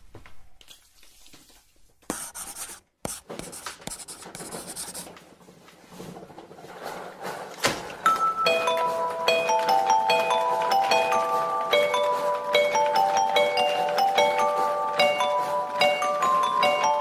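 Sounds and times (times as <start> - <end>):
marker pen scratching: 2.1 - 5.1.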